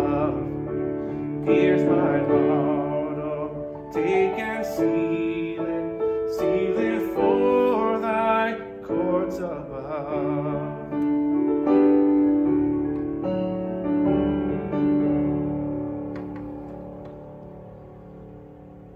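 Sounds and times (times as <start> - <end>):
grand piano chords: 0.0 - 18.9.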